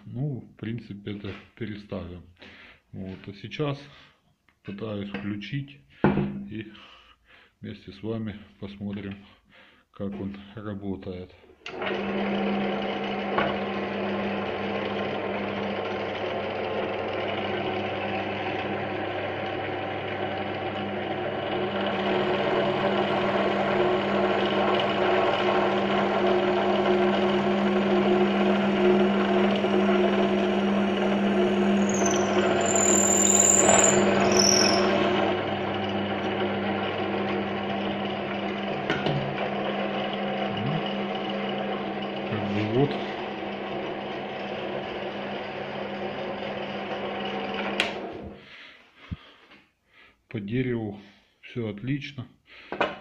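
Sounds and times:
drill press motor humming: 0:11.7 - 0:48.3
drill bit drilling into wood: 0:11.9 - 0:38.6
high squeal: 0:31.6 - 0:35.2.

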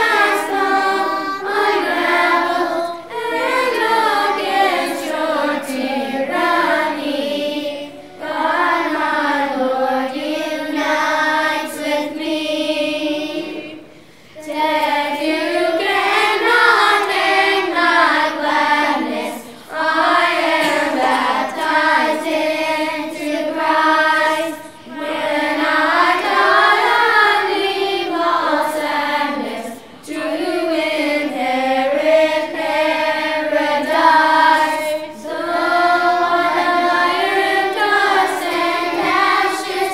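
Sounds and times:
children's choir singing a hymn: 0:00.0 - 0:39.9
singers breathing: 0:13.8 - 0:14.4.

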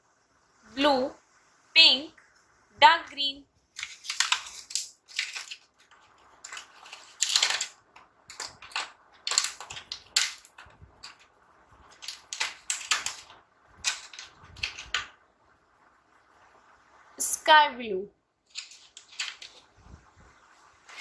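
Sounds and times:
plastic crayons clicking in case: 0:03.8 - 0:11.3, 0:11.9 - 0:15.1, 0:18.5 - 0:19.6.

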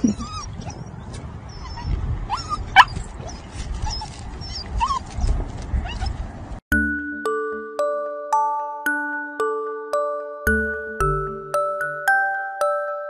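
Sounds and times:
puppy whining and yipping: 0:00.0 - 0:06.2
chiming music: 0:06.7 - 0:13.0.

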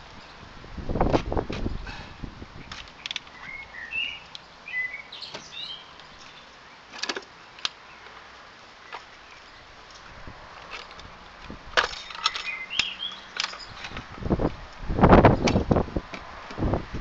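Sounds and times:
birds chirping: 0:01.6 - 0:10.2, 0:12.0 - 0:14.0.

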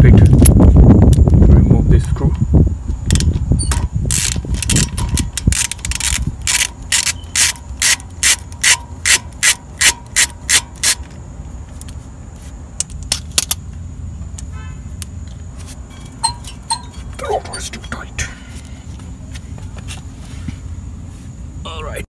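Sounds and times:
ratchet clicking: 0:03.1 - 0:11.1, 0:16.0 - 0:17.1.

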